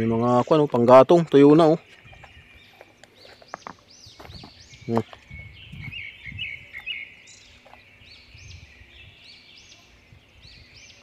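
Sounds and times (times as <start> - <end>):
small birds chirping: 0.0 - 11.0
footsteps on loose stones: 0.7 - 6.0, 6.8 - 7.9.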